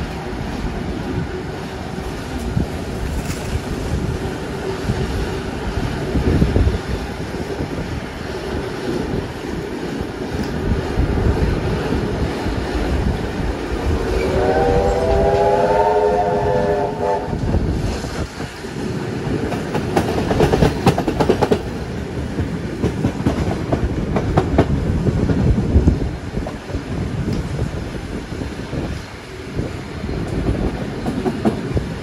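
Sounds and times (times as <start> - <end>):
train rumbling: 0.0 - 32.0
train whistle: 14.1 - 17.6
wheels clicking over rail joints: 18.0 - 25.8, 26.4 - 32.0.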